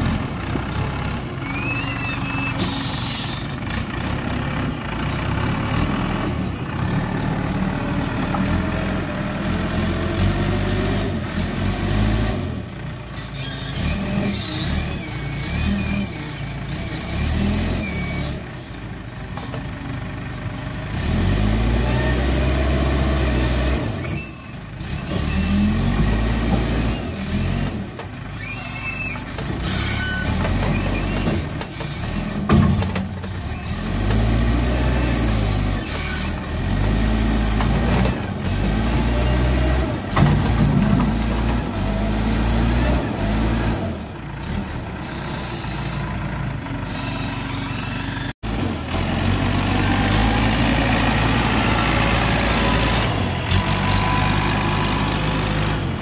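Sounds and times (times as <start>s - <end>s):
heavy diesel engine revving: 2.7s - 18.5s, 20.0s - 24.1s, 24.8s - 32.5s, 33.2s - 56.0s.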